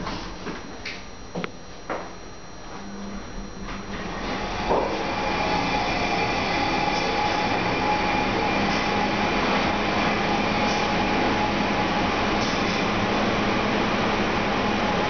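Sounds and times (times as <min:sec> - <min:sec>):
faint hum: 0:00.0 - 0:15.0
elevator car running: 0:03.6 - 0:15.0.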